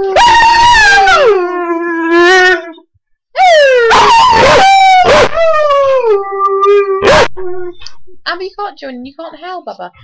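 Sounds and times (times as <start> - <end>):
dog howling: 0.0 - 7.8.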